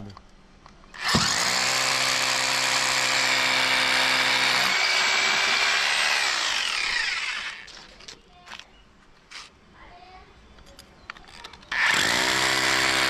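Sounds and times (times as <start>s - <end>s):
hammer drill boring into concrete: 1.0s - 7.9s, 11.7s - 13.0s.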